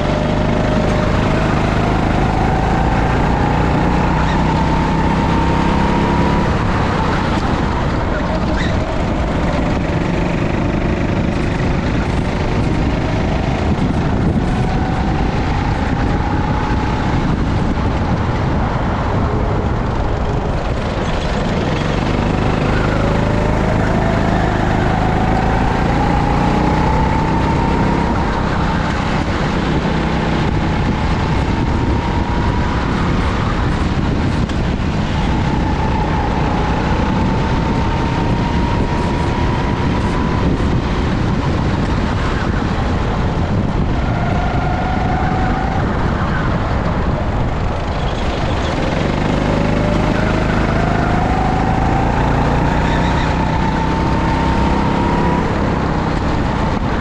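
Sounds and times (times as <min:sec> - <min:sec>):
go-kart engine running: 0:00.0 - 0:57.0.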